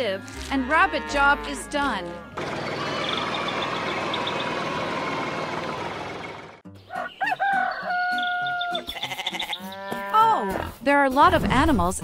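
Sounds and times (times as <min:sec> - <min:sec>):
sheep bleating: 0:00.1 - 0:02.4, 0:08.4 - 0:10.8
truck engine running: 0:02.4 - 0:06.6
rooster crowing: 0:06.9 - 0:08.9.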